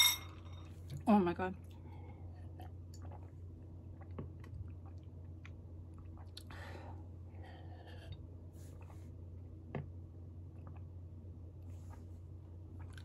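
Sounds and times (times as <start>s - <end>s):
breath: 6.5s - 8.0s.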